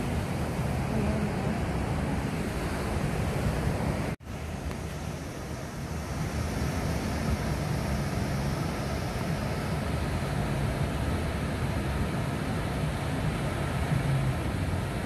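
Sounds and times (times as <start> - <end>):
ocean surf: 0.0 - 15.0
wind buffeting the microphone: 0.0 - 15.0.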